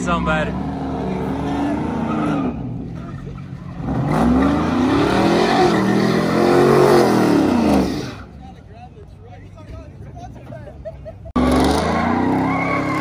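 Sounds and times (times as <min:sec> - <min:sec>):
car engine revving hard: 0:03.8 - 0:08.2, 0:11.4 - 0:13.0.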